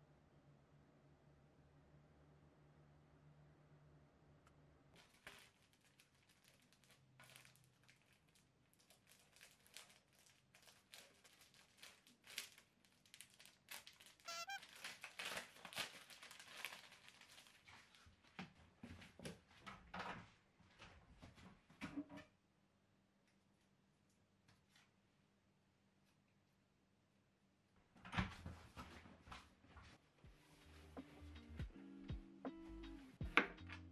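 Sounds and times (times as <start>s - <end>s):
plastic wrapping crinkling: 5.0s - 18.4s
short squeak: 14.3s - 14.6s.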